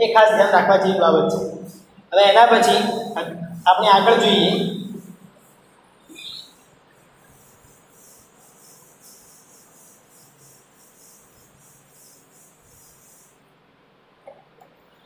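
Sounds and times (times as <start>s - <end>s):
duster scrubbing a blackboard: 3.7s - 13.4s.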